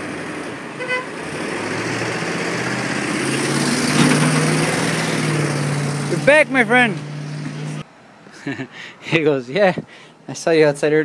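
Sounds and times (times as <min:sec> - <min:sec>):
delivery truck engine hum: 0:00.0 - 0:07.8.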